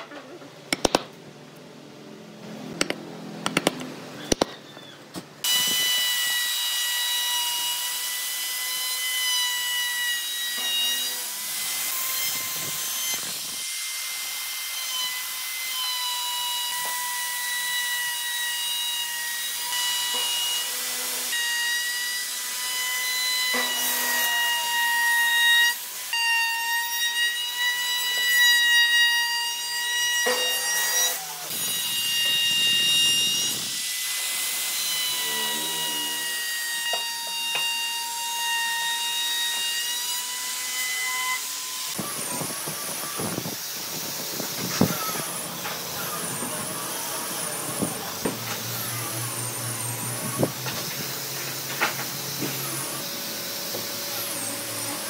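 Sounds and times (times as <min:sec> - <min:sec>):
electric router whining: 0:29.6 - 0:55.0.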